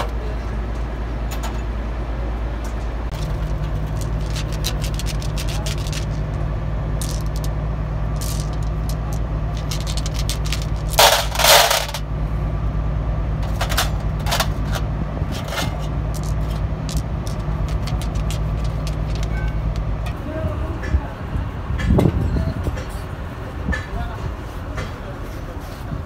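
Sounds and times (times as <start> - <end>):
steady low hum: 0.0 - 26.0
steel rollers clinking: 2.6 - 6.4, 7.0 - 12.1, 13.4 - 21.0.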